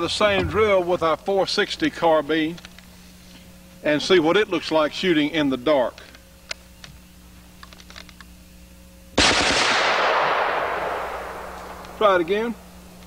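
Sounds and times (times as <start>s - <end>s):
loud gunshot report: 9.2s - 12.3s.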